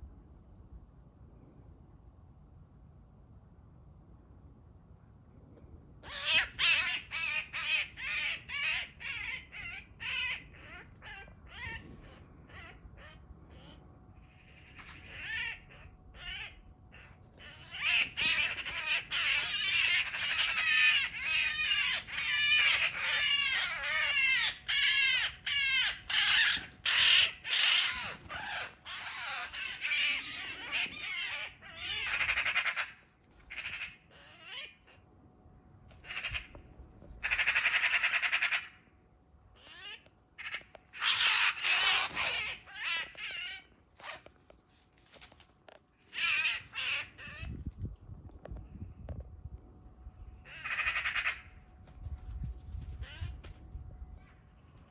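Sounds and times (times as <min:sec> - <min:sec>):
magpie harsh rasping distress calls: 0:06.0 - 0:35.0, 0:37.2 - 0:38.8, 0:39.6 - 0:44.3, 0:46.1 - 0:47.5, 0:50.4 - 0:51.6.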